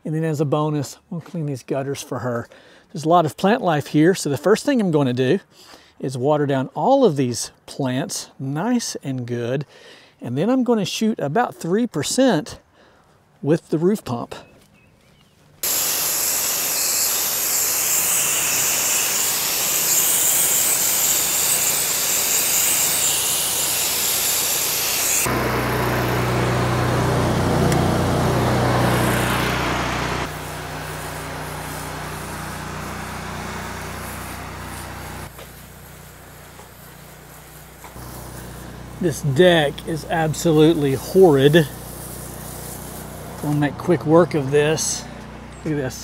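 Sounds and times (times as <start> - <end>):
spray nozzle hissing: 15.6 - 43.7
engine humming: 23.4 - 46.0.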